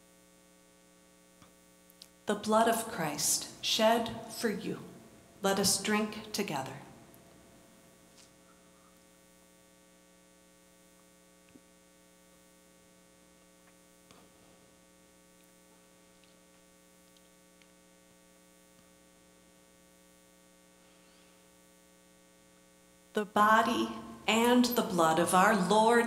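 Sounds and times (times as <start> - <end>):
electrical hum: 1.5 - 26.0
faint small clicks: 17.0 - 17.8.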